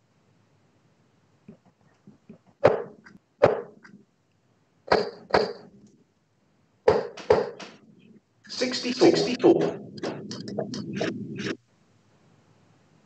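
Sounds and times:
darts thudding into dartboard: 2.6s - 3.8s.

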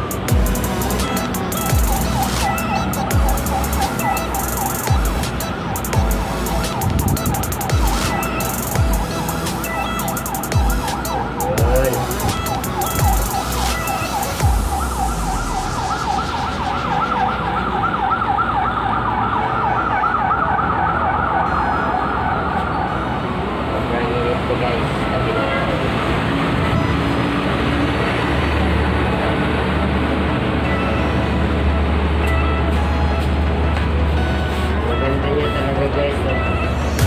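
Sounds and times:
dance music with steady beat: 0.0s - 17.0s
siren-like warble: 0.0s - 23.2s.

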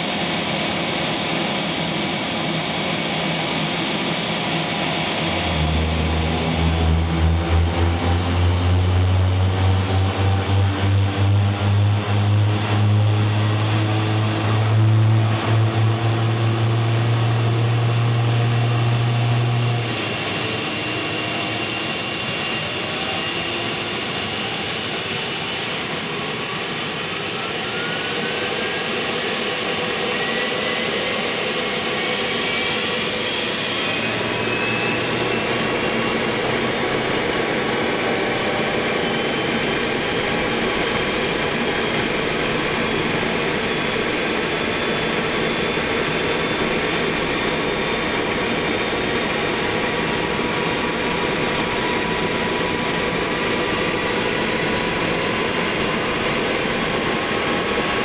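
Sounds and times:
helicopter engine roar: 0.0s - 58.0s
turbine engine whine: 0.0s - 58.0s
strong low hum: 4.2s - 22.2s.

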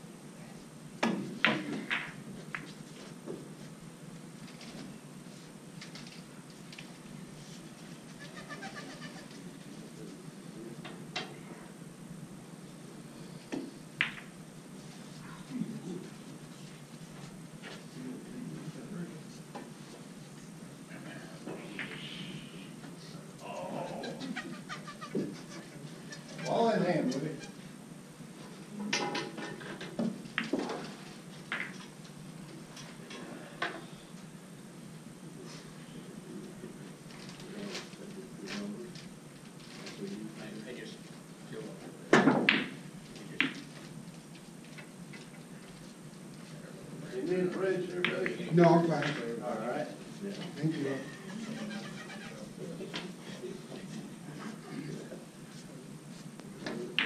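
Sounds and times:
pool balls clicking: 1.0s - 2.8s, 13.5s - 14.4s, 29.1s - 32.0s.

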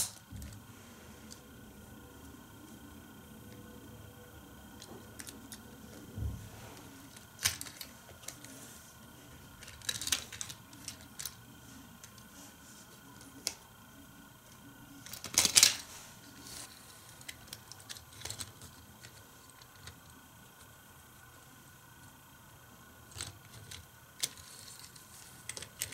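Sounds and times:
plastic toy parts clattering: 7.1s - 8.5s, 9.5s - 11.4s, 15.0s - 20.0s.

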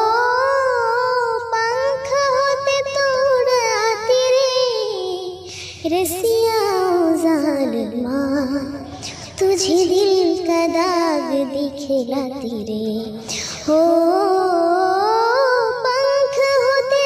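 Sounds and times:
girl singing: 0.0s - 17.0s.

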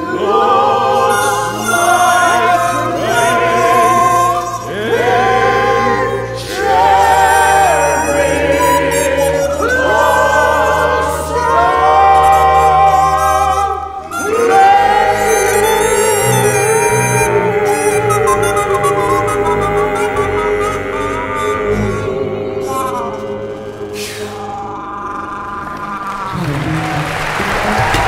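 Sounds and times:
instrumental accompaniment with bass: 0.0s - 24.5s
voices singing together: 0.0s - 28.0s.

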